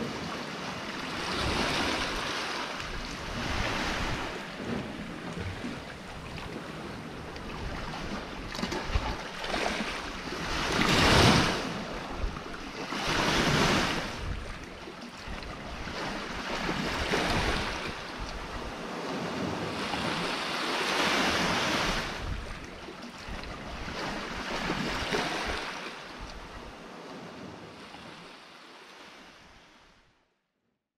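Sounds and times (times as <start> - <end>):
waves breaking on rocks: 0.0 - 12.0, 15.7 - 22.7.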